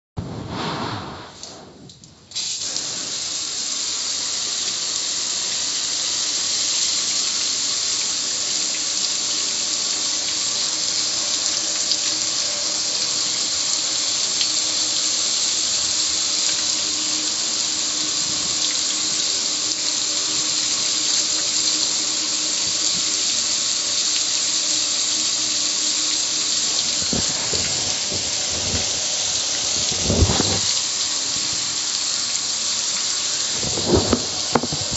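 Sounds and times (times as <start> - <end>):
hose spraying water on metal: 2.3 - 34.9.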